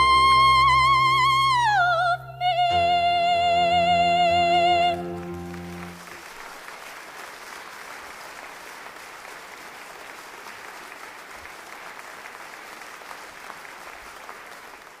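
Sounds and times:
low musical chord: 0.0s - 6.1s
audience applauding: 4.9s - 15.0s.

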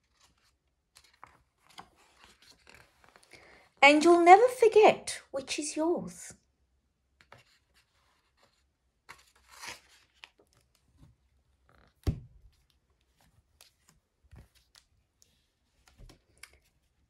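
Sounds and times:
book page rustling: 0.0s - 3.3s, 7.2s - 17.0s
hardcover book closing thump: 12.0s - 12.3s.

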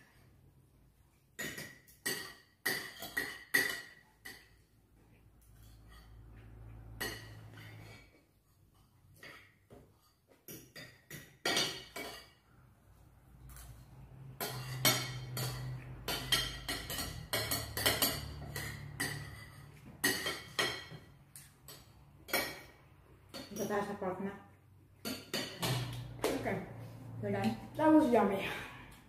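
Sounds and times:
cutlery clinking on plates: 1.3s - 4.8s, 5.4s - 12.5s, 13.4s - 24.0s, 25.0s - 26.2s.

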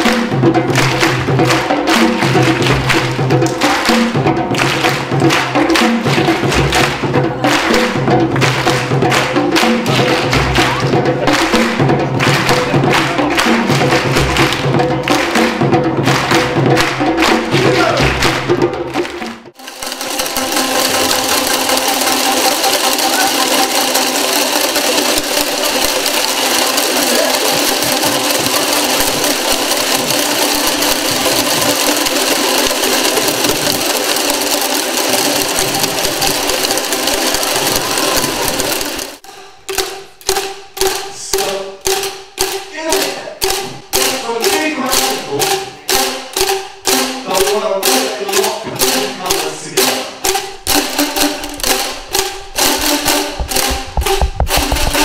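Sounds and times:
hand drums rhythm: 0.0s - 55.0s
boomwhacker tubes clattering: 19.6s - 55.0s.

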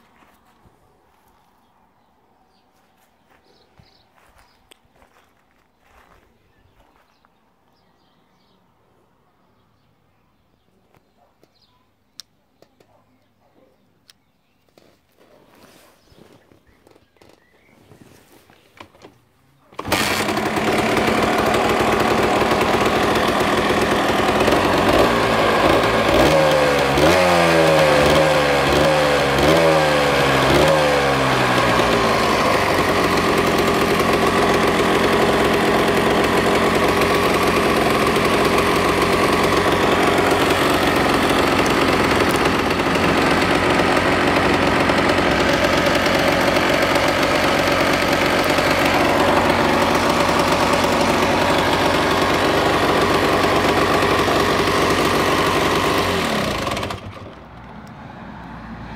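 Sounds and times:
motorcycle engine revving and idling: 19.7s - 57.7s.

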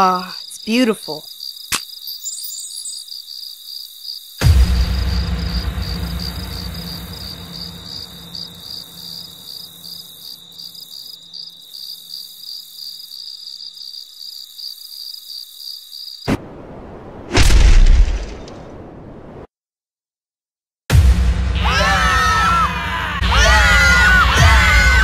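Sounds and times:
crickets chirping: 0.0s - 16.3s
deep low boom: 4.4s - 9.8s.

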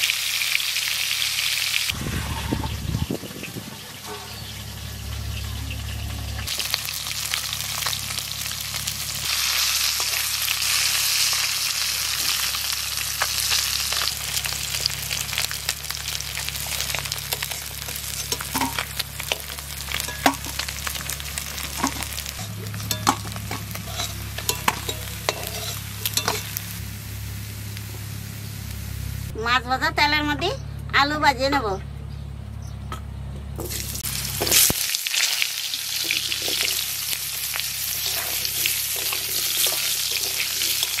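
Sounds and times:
fish sizzling in hot oil: 0.0s - 2.8s, 3.7s - 29.3s, 33.7s - 41.0s
utensil clinking on metal: 16.8s - 26.6s, 38.0s - 41.0s.

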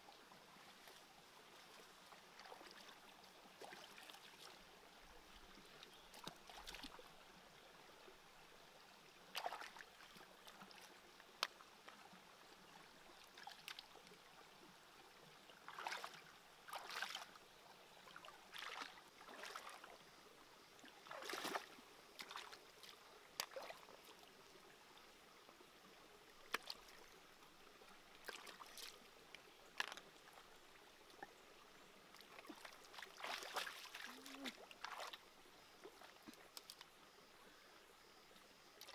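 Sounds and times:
feet splashing through stream: 0.5s - 4.6s, 5.6s - 7.1s, 9.3s - 11.0s, 15.6s - 17.4s, 18.0s - 20.0s, 20.9s - 24.2s, 26.4s - 27.1s, 28.2s - 30.1s, 32.1s - 35.2s.

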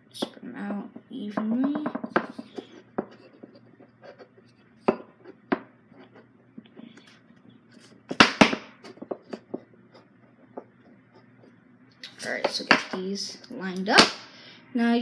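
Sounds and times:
wooden pieces knocking on tabletop: 1.4s - 3.2s, 8.1s - 9.7s.

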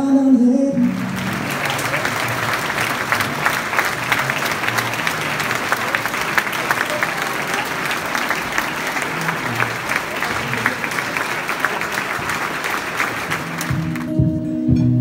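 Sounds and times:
crowd applauding: 0.7s - 14.4s
acoustic guitar playing: 13.4s - 15.0s.

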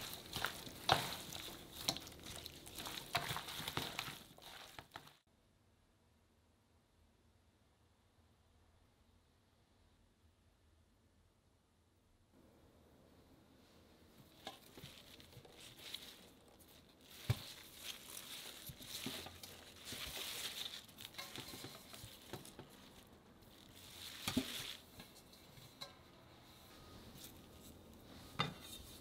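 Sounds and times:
radish leaves rustling: 0.0s - 5.2s, 14.2s - 29.0s.

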